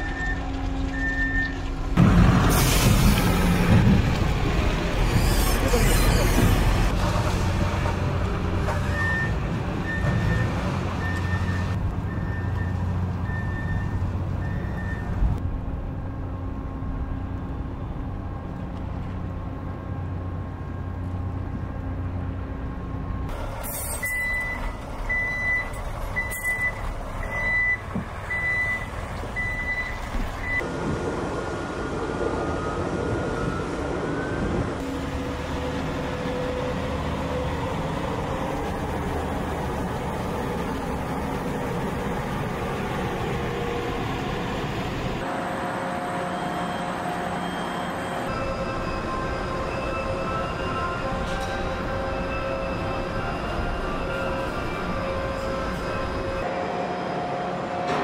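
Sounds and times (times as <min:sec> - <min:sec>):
diesel engines rumbling: 0:00.0 - 0:58.0
reversing alarm beeping: 0:08.9 - 0:15.3, 0:23.8 - 0:30.6, 0:45.4 - 0:56.5
higher reversing alarm beeping: 0:23.9 - 0:30.6, 0:45.4 - 0:56.5.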